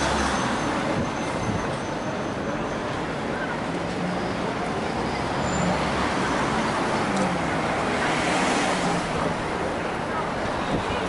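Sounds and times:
cars and buses passing: 0.0 - 11.0.

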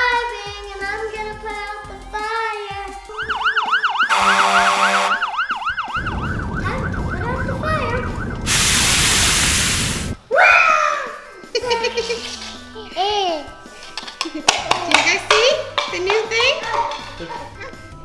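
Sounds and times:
music: 0.0 - 8.1, 10.2 - 18.0
fire truck siren yelping: 3.2 - 8.7
low rumble: 5.9 - 10.2
water spraying from fire hose: 7.2 - 10.2.

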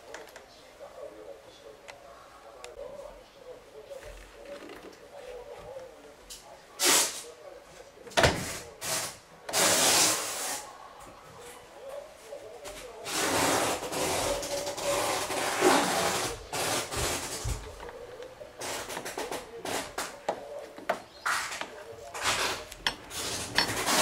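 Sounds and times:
metal hinge scraping plastic: 21.3 - 24.0.

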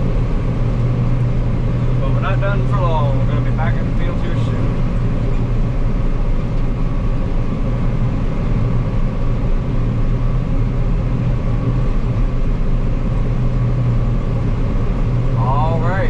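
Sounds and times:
combine harvester drone: 0.0 - 16.0.

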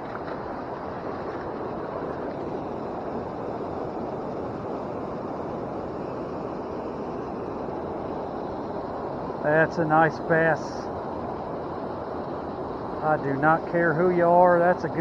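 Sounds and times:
river water over rocky waterfall: 0.0 - 15.0.

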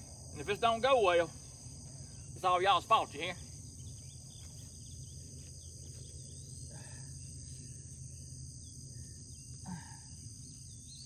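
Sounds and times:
high-pitched insect chorus: 0.0 - 11.0
low steady hum: 0.0 - 11.0.

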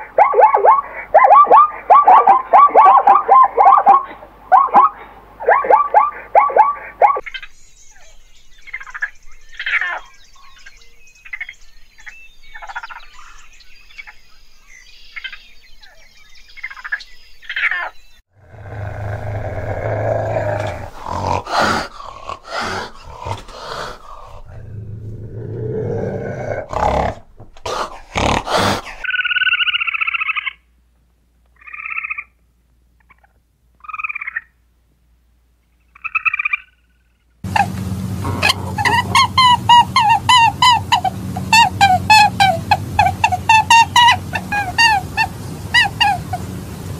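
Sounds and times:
short animal calls: 0.0 - 7.2
animal chirps and squeals: 5.5 - 10.7, 37.5 - 46.4
animal growling: 18.4 - 29.1, 37.5 - 40.2.

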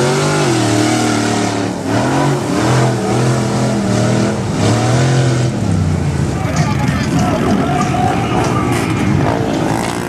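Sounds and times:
truck engine revving in mud: 0.0 - 6.2, 8.2 - 10.0.

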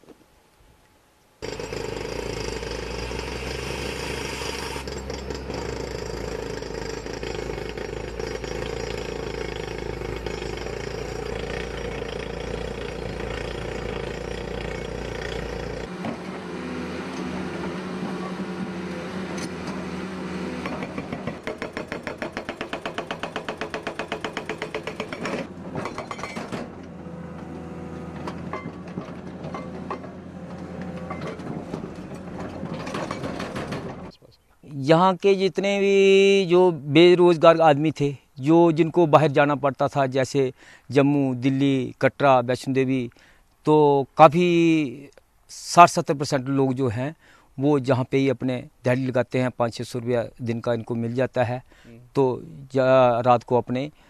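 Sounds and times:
hydraulic breaker hammering on rock: 1.4 - 15.9, 20.6 - 26.7
rock drill rig drilling: 1.4 - 16.4.

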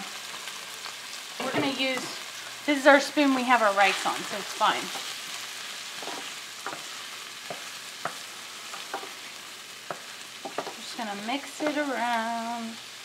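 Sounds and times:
vegetables sizzling in a pan: 0.0 - 13.0
wooden spoon knocking against pan: 9.8 - 10.8.

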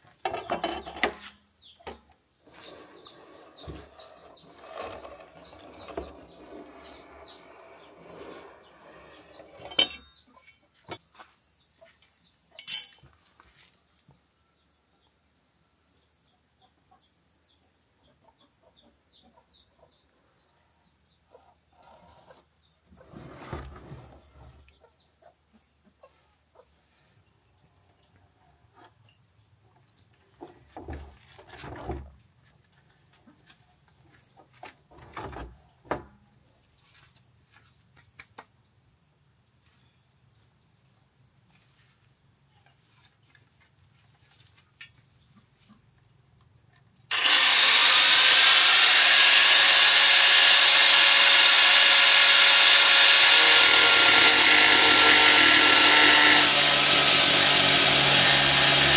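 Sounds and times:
angle grinder cutting plastic: 2.9 - 10.0, 47.1 - 58.9.

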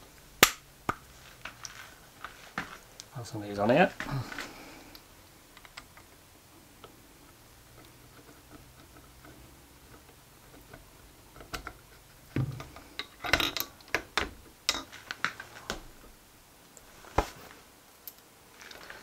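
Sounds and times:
sharp metal clicks and knocks: 7.7 - 15.4
metal parts handled on workbench: 11.4 - 16.0.

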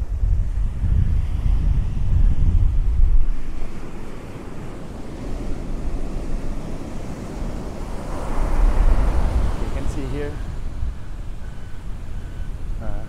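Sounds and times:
wind rumble on microphone: 0.0 - 13.0
ocean surf breaking: 3.0 - 12.8.

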